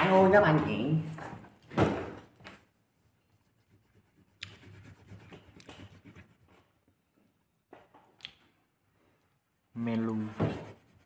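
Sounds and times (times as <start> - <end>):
pencil scratching on paper: 3.0 - 6.8, 10.3 - 11.0.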